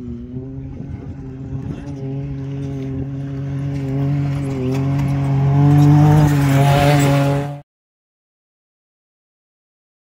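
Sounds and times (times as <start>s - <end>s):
truck engine driving: 0.0s - 7.6s.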